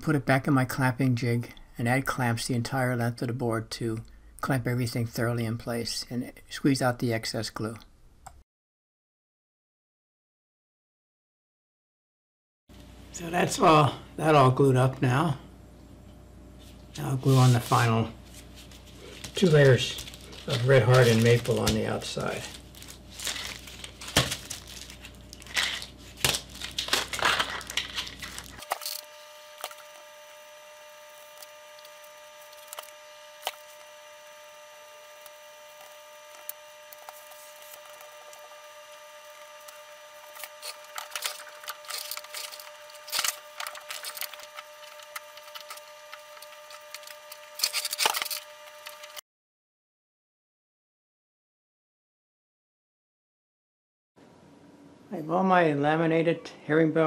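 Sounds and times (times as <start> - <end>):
faint steady hum: 0.0 - 8.4, 12.7 - 49.2.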